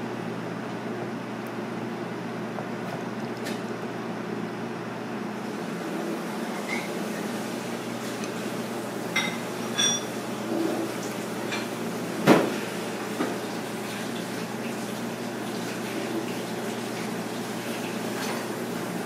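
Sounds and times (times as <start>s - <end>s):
room noise hum: 0.0s - 19.0s
dishes and cutlery clinking: 9.2s - 10.2s.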